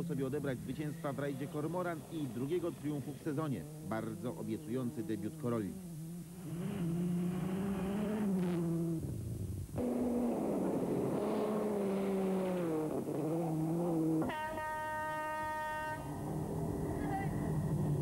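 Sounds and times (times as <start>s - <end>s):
rally car engine at high revs: 3.5s - 14.3s
steady horn-like tone: 14.2s - 16.4s.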